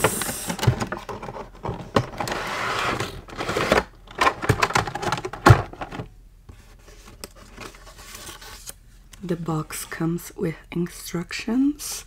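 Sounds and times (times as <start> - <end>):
packaging rustling and scraping: 0.0 - 8.8.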